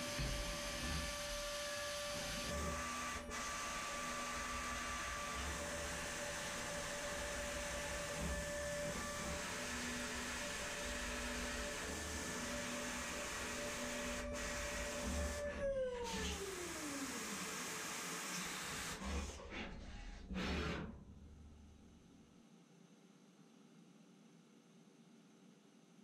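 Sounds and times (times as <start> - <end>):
milling machine spindle whine: 0.0 - 19.3.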